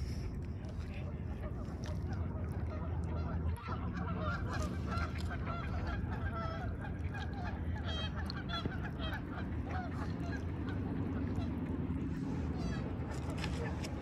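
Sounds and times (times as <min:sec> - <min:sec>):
steady low rumble: 0:00.0 - 0:14.0
geese honking: 0:03.2 - 0:11.5.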